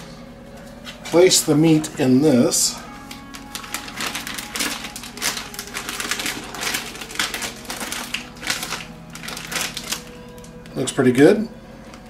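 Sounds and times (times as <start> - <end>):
plastic bag crinkling: 2.8 - 10.6.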